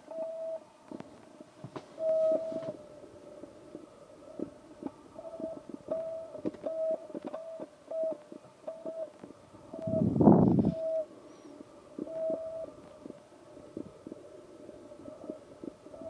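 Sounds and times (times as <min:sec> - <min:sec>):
electronic beeps: 0:09.7 - 0:12.8.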